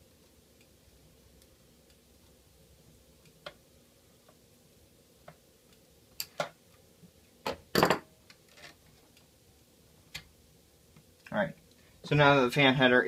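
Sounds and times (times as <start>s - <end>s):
screwdriver clattering on wooden desk: 7.5s - 8.1s.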